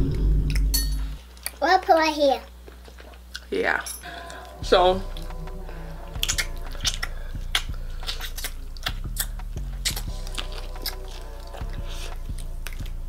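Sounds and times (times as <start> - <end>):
low steady hum: 0.0 - 1.6, 2.5 - 13.0
chewing and wet mouth smacks: 6.1 - 13.0.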